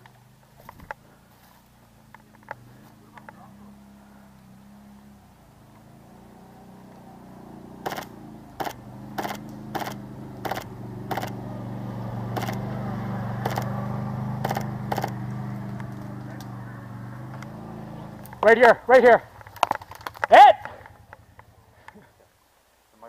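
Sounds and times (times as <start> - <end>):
airsoft gun shots: 7.8 - 11.3.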